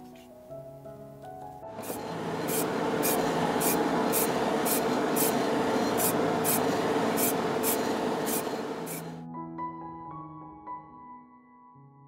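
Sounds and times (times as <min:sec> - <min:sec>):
extractor fan whirring: 0:01.7 - 0:09.2
spray paint can hissing: 0:01.8 - 0:09.2.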